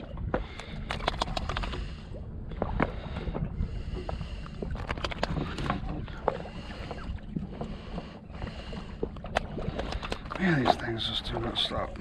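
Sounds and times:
boat engine rumble: 0:00.0 - 0:12.0
clicks and taps of fishing line: 0:00.3 - 0:01.9, 0:04.7 - 0:06.4, 0:09.0 - 0:10.8.

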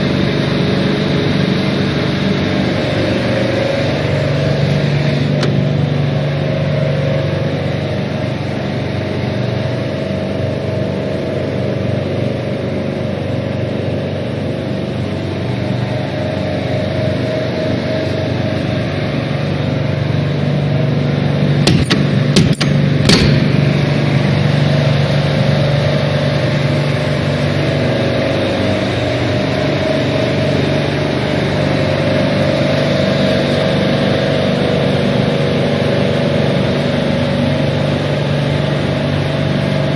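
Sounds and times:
machinery droning: 0:00.0 - 0:39.9
sharp clicks: 0:21.6 - 0:23.4.

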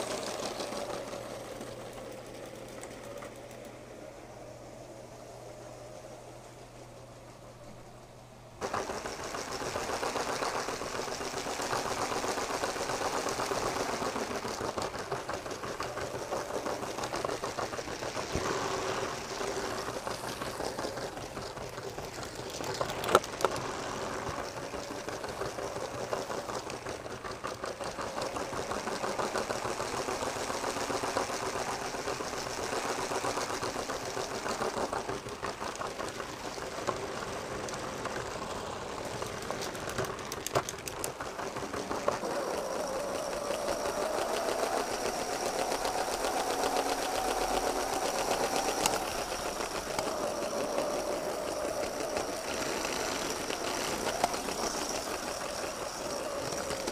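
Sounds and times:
wheels rattling on plastic track: 0:00.0 - 0:07.9, 0:08.6 - 0:56.9
small electric motor whirring: 0:41.8 - 0:56.9.

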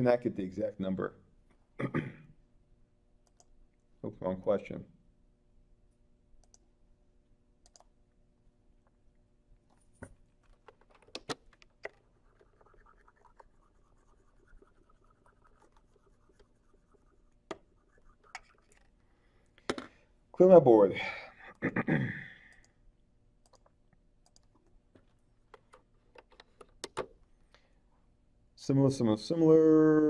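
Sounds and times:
soft scratching: 0:12.0 - 0:19.0.

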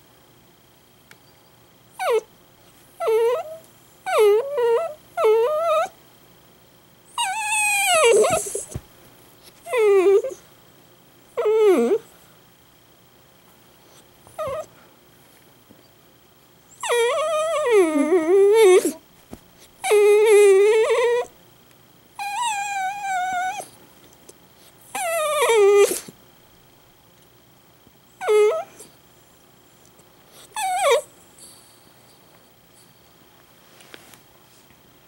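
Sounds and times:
dog whining howls: 0:02.0 - 0:02.3, 0:03.0 - 0:06.0, 0:07.2 - 0:08.8, 0:09.6 - 0:10.4, 0:11.4 - 0:12.0, 0:14.4 - 0:14.7, 0:16.7 - 0:19.0, 0:19.8 - 0:21.3, 0:22.2 - 0:23.8, 0:24.9 - 0:26.1, 0:28.2 - 0:28.9, 0:30.5 - 0:31.1
dog yelp: 0:07.2 - 0:08.8, 0:14.4 - 0:14.7, 0:16.8 - 0:19.0, 0:19.8 - 0:21.3, 0:22.2 - 0:23.7, 0:24.9 - 0:26.1, 0:28.2 - 0:28.8, 0:30.6 - 0:31.1.

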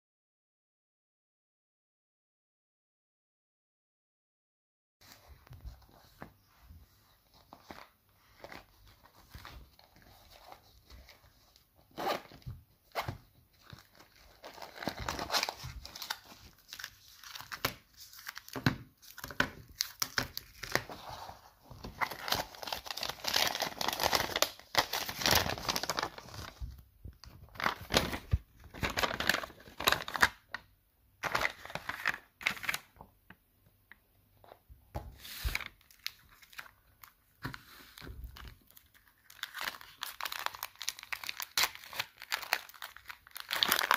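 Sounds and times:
plastic wrappers crinkling and tearing: 0:12.1 - 0:21.2, 0:21.8 - 0:30.6, 0:35.3 - 0:43.9.

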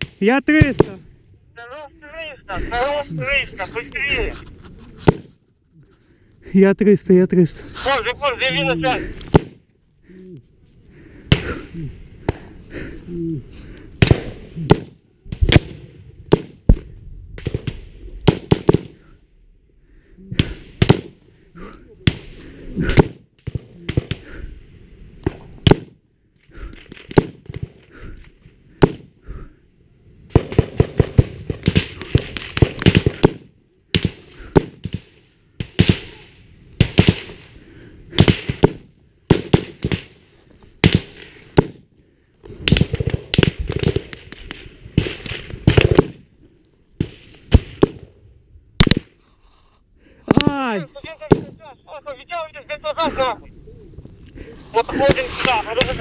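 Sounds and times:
gunfire volleys: 0:30.3 - 0:37.5, 0:38.1 - 0:40.2, 0:42.6 - 0:46.2, 0:48.8 - 0:49.1, 0:51.2 - 0:51.7.

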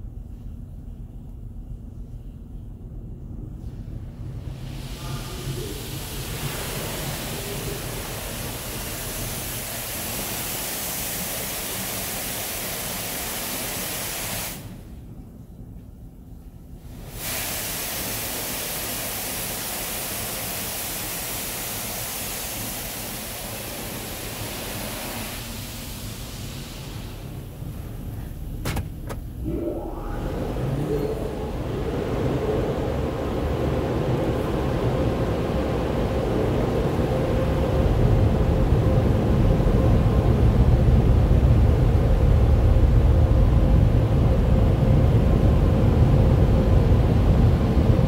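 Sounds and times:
water jets spraying on a van: 0:04.6 - 0:14.7, 0:16.9 - 0:28.0.

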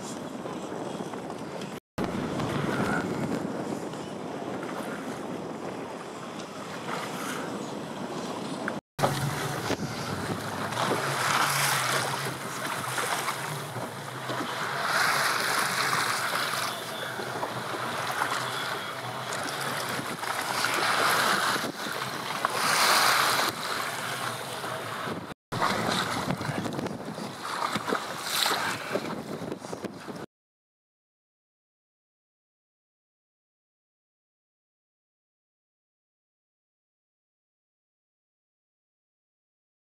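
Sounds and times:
choppy water: 0:00.0 - 0:30.3
wind buffeting microphone: 0:00.0 - 0:30.3.

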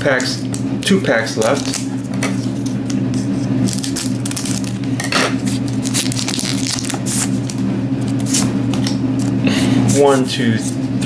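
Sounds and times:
steady low hum: 0:00.0 - 0:11.0
scissors cutting foil pack: 0:03.6 - 0:04.9, 0:05.5 - 0:07.6
foil crinkling: 0:03.6 - 0:08.3.

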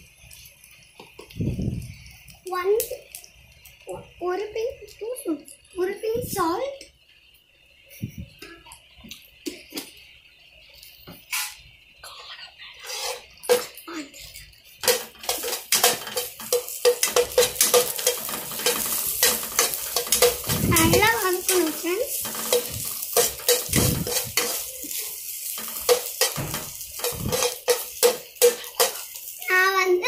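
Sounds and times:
okra sizzling in oil: 0:00.0 - 0:08.0, 0:08.6 - 0:12.0, 0:12.7 - 0:30.0
metal spoon scraping a pan: 0:12.8 - 0:29.5.

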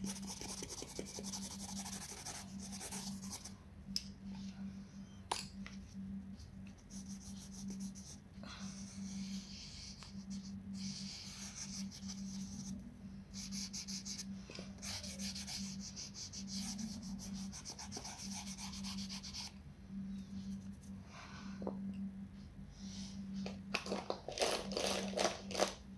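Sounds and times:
pencil scratching on paper: 0:00.0 - 0:03.5, 0:09.0 - 0:12.7, 0:13.4 - 0:19.5
steady low hum: 0:00.0 - 0:25.9.

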